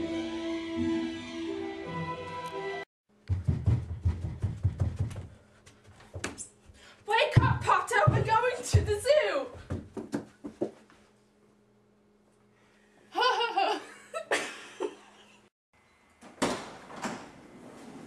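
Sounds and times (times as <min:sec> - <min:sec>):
person laughing: 0:13.1 - 0:15.4.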